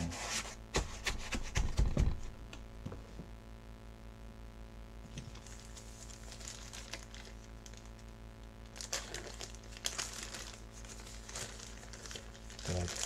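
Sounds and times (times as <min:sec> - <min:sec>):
low electrical hum: 0:00.0 - 0:13.0
plastic bag crinkling: 0:05.2 - 0:13.0.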